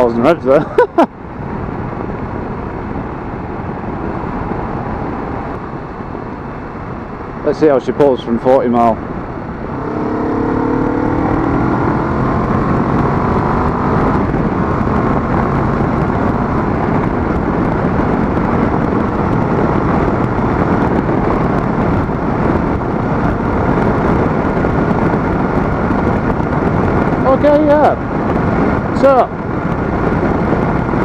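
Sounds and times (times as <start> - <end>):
wind rushing on microphone: 0.0 - 31.0
motorcycle engine accelerating: 9.0 - 31.0.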